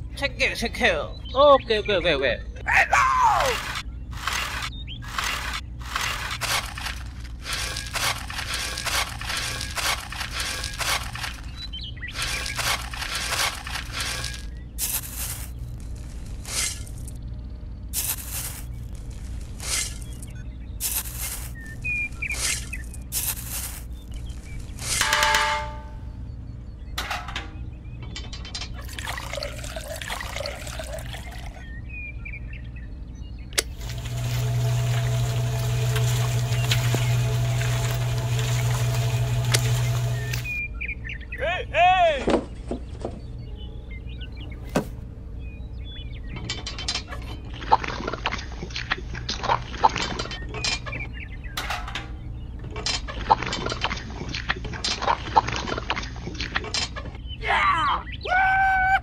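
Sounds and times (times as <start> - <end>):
water trickling into can: 28.8 - 31.6.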